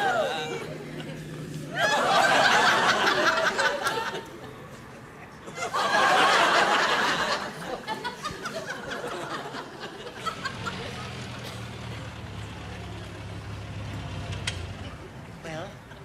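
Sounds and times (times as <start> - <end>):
audience laughter: 0.5 - 4.8, 5.4 - 12.5.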